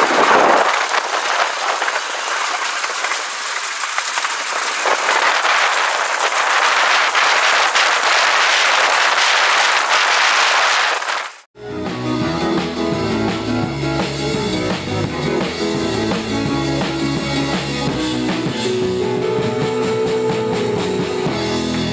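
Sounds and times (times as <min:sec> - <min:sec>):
loud rushing noise: 0:00.0 - 0:11.5
music with drums and guitar: 0:11.6 - 0:21.9.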